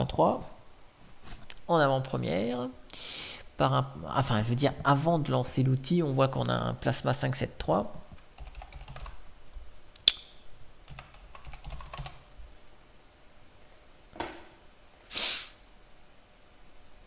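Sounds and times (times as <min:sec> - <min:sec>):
typing on computer keyboard: 0:08.4 - 0:09.2, 0:10.9 - 0:12.2
short hissing noise: 0:15.0 - 0:15.6.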